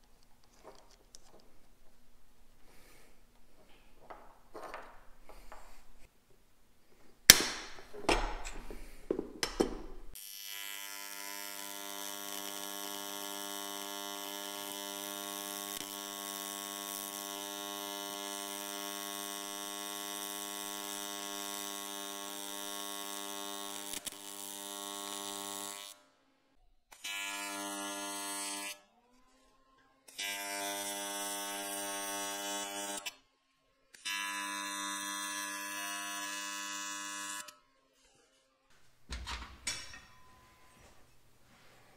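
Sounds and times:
welding arc buzzing: 7.3s - 26.0s, 34.0s - 37.5s.

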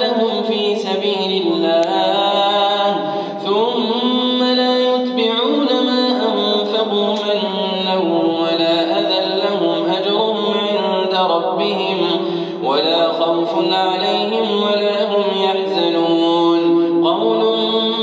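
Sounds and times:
man reciting melodically: 0.0s - 18.0s.

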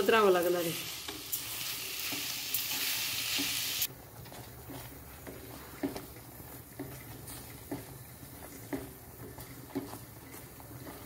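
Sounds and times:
food sizzling in a pan: 0.0s - 3.9s
spatula scraping and tapping pan: 4.2s - 11.0s.

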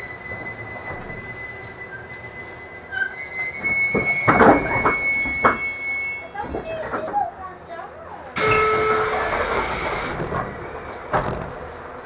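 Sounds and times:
train running rumble: 0.0s - 7.7s, 8.4s - 12.0s
train motor whine: 8.4s - 11.4s
train halting thump: 8.4s - 11.7s.

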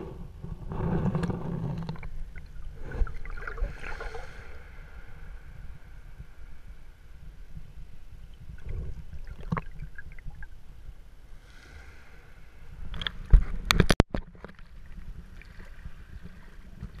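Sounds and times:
underwater low rumble: 0.0s - 17.0s
water noise: 0.0s - 17.0s.

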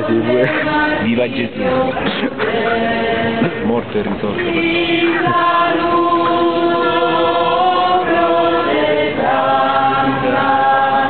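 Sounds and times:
group singing a hymn unaccompanied: 0.0s - 11.0s.

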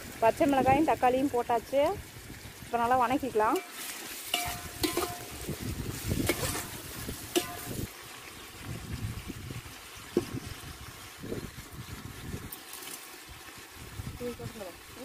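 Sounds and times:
vegetables frying in oil: 0.0s - 15.0s
metal ladle scraping and knocking pot: 3.6s - 7.9s.

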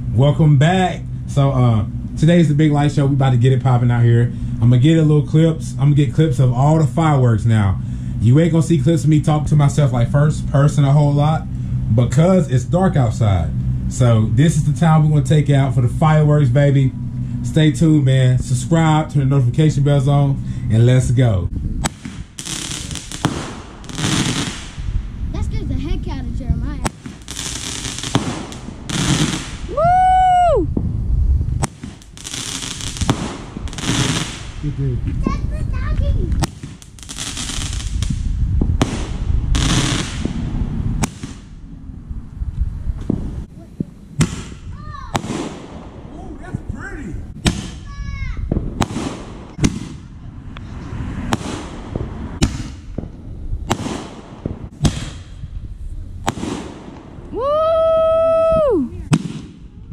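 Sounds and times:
low rumble: 0.0s - 59.9s
fireworks sharp pops: 21.8s - 25.0s, 26.7s - 29.8s, 30.8s - 35.2s, 35.8s - 41.6s, 43.0s - 46.6s, 47.4s - 50.6s, 51.2s - 55.6s, 56.2s - 57.3s, 59.1s - 59.8s
fireworks hissing launches: 21.8s - 25.6s, 26.8s - 29.8s, 30.8s - 34.9s, 35.5s - 41.6s.

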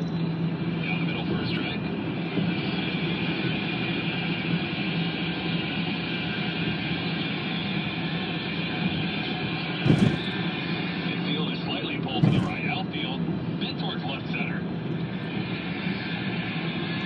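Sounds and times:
car cabin engine drone: 0.0s - 17.0s
tyre rumble: 9.8s - 10.4s, 12.2s - 12.6s.

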